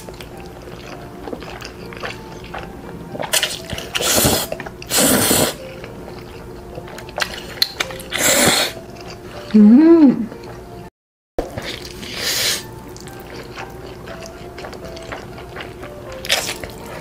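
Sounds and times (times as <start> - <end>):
noodles being slurped: 1.3 - 5.7.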